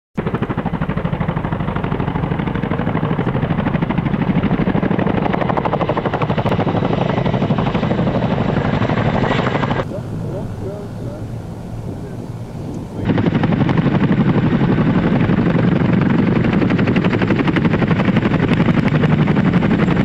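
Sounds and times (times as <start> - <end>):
helicopter rotor beat: 0.2 - 20.0.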